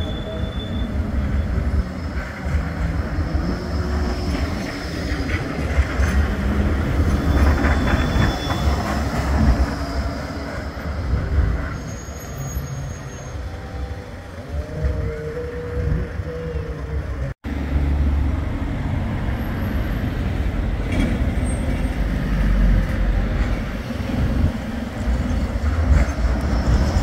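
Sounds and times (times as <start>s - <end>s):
high wheel squeal: 0.0s - 17.2s, 25.2s - 27.0s
tram running past: 0.0s - 27.0s.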